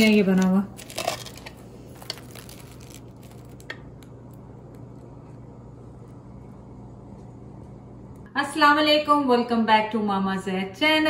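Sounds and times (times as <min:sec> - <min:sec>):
bread crust crunching: 0:00.0 - 0:06.2
steady low hum: 0:00.0 - 0:11.0.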